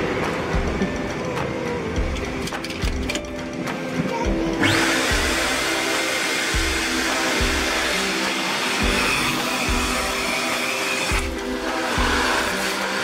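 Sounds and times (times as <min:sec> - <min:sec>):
background music with beat: 0:00.0 - 0:13.0
vacuum motor whine and hiss: 0:03.7 - 0:13.0.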